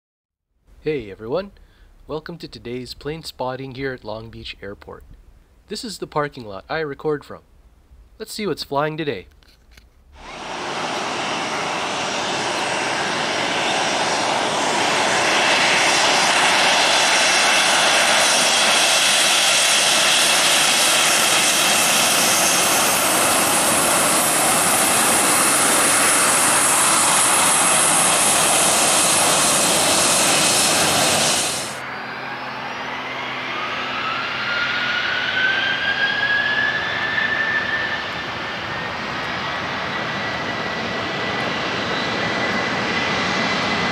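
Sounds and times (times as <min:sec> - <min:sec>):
jet engines spooling up whine: 0:10.1 - 0:43.9
jet engines rushing: 0:10.2 - 0:43.9.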